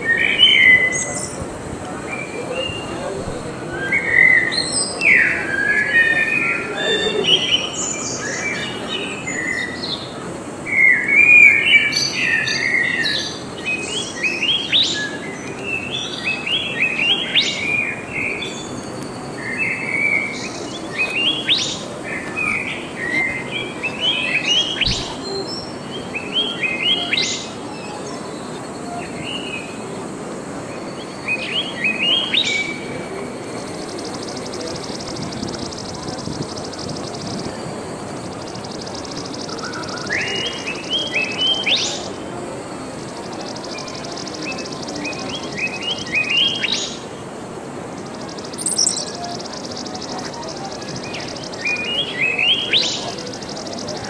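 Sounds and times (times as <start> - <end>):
small birds chirping: 11.3 - 29.7, 30.9 - 54.0.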